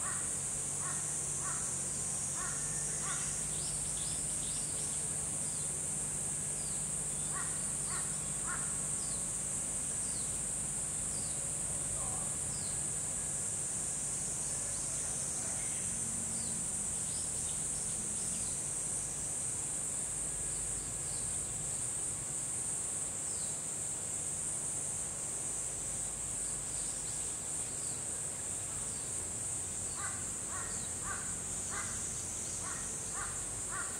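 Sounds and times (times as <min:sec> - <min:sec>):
small birds chirping: 0:00.0 - 0:05.8, 0:06.4 - 0:12.8, 0:29.8 - 0:33.9
insects buzzing: 0:00.0 - 0:33.9
crow cawing: 0:00.8 - 0:01.7, 0:02.4 - 0:03.4, 0:07.3 - 0:08.7, 0:30.0 - 0:32.0, 0:32.6 - 0:33.9.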